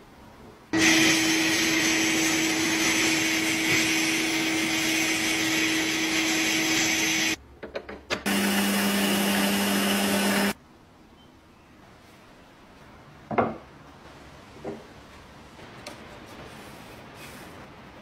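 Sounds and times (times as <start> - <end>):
lathe running: 0.8 - 7.4, 8.3 - 10.6.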